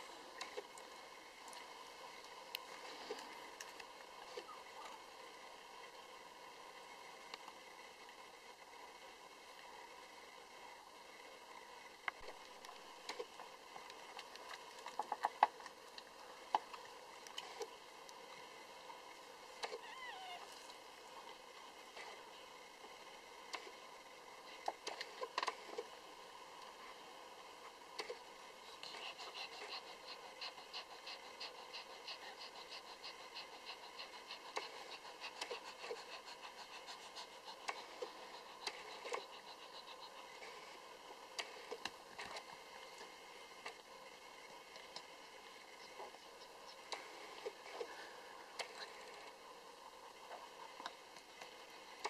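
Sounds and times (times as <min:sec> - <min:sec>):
puppy squeaky cry: 0:19.8 - 0:20.5
dog panting rapidly: 0:28.6 - 0:40.8.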